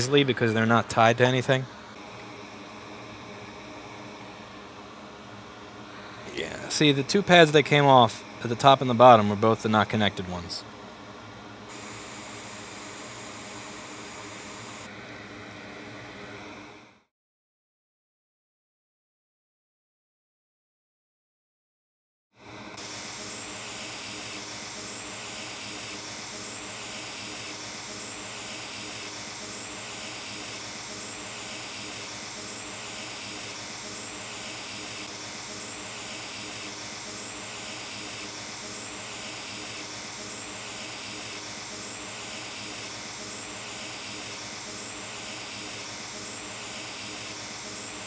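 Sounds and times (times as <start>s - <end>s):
hot air station hissing: 5.8s - 10.6s, 11.7s - 14.9s, 22.8s - 48.0s.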